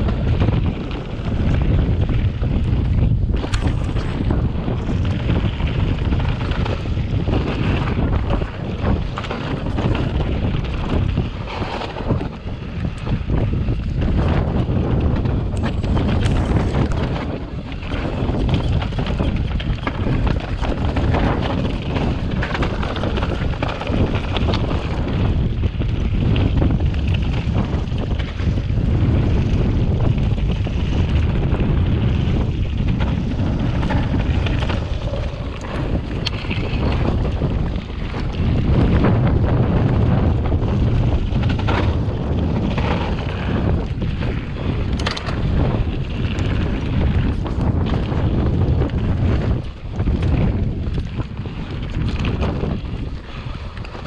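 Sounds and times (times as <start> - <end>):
bike frame rattling: 0.0 - 54.0
bike tyres crunching on stones: 0.0 - 54.0
wind buffeting microphone: 0.0 - 54.0.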